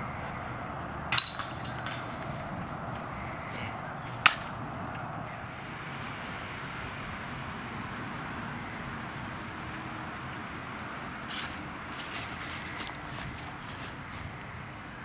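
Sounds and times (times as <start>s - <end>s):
outdoor background hiss: 0.0s - 15.0s
sharp crack: 4.2s - 4.6s.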